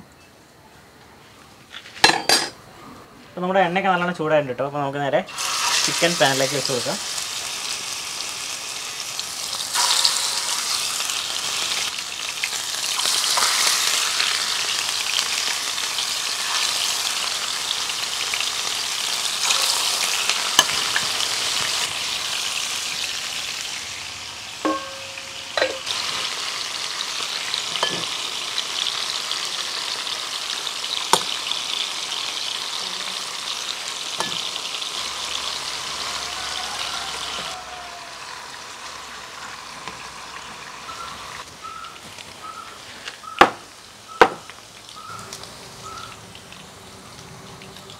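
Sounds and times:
chicken sizzling in hot oil: 0:05.3 - 0:47.9
sharp clinks: 0:24.6 - 0:25.9.

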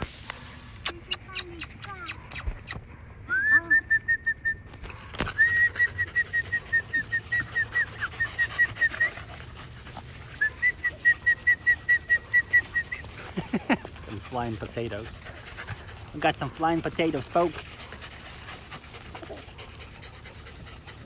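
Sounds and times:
person whistling rapid notes: 0:03.3 - 0:04.7, 0:05.4 - 0:09.1, 0:10.4 - 0:13.0.

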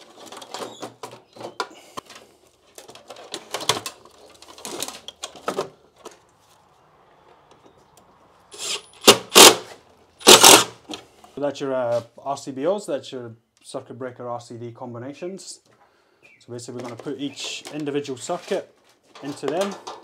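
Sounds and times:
cables rustling against plastic: 0:00.0 - 0:06.8, 0:16.6 - 0:20.0.

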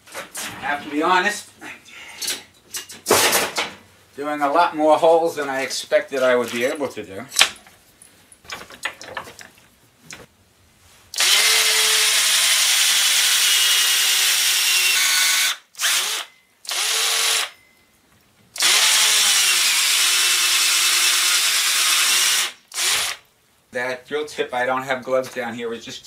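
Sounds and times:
drill cutting through wood: 0:11.2 - 0:17.6, 0:18.6 - 0:23.2.

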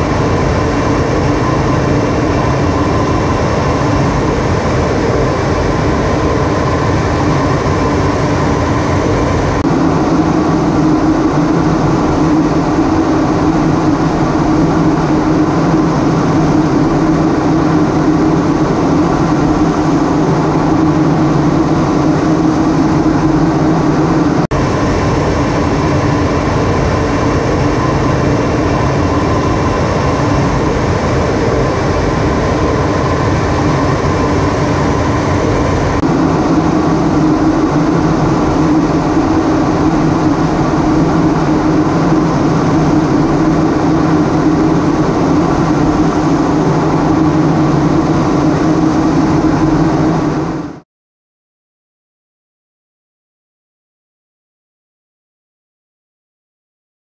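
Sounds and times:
airflow rush: 0:00.0 - 0:50.8
jet engine drone: 0:00.0 - 0:50.8.

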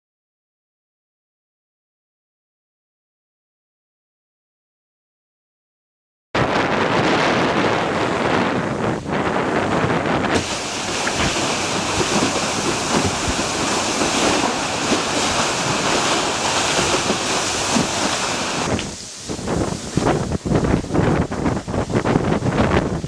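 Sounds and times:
water rushing past boat hull: 0:06.4 - 0:23.0
wind buffeting microphone: 0:06.4 - 0:23.0.

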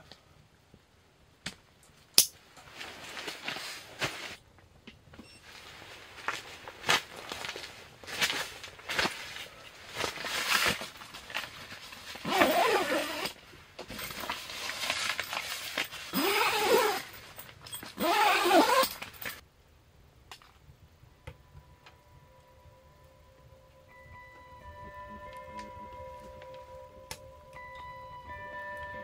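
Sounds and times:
tent fabric rustling and scraping: 0:02.4 - 0:04.4, 0:05.2 - 0:19.4
squeaky scrapes: 0:14.5 - 0:19.4.

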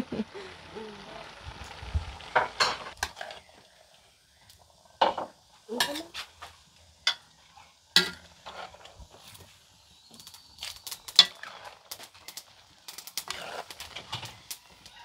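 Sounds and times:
faint frying: 0:00.0 - 0:15.0
spatula scraping noodles in pot: 0:08.2 - 0:09.2, 0:13.0 - 0:14.5.

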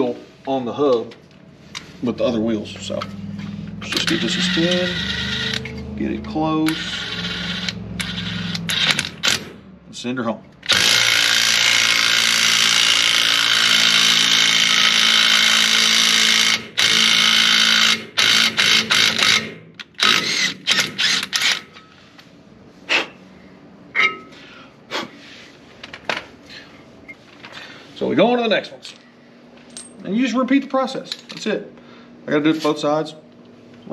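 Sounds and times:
impact wrench: 0:03.0 - 0:09.6, 0:10.6 - 0:21.9.

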